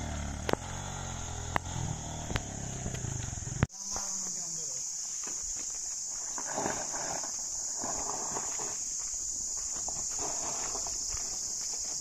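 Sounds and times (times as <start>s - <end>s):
insects buzzing: 0.0s - 12.0s
footsteps on gravel: 5.0s - 12.0s.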